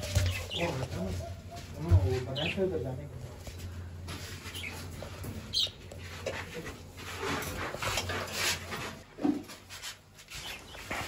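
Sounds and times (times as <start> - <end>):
budgerigars chirping and squawking: 0.0 - 2.7, 4.5 - 5.8, 10.4 - 11.0.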